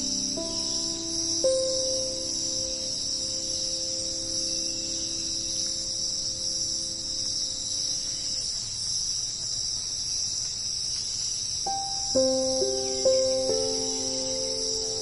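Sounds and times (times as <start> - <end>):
shrill insect chorus: 0.0 - 15.0.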